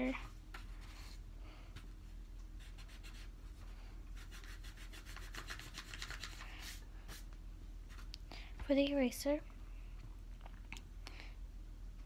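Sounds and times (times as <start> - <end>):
eraser rubbing on paper: 4.2 - 7.2.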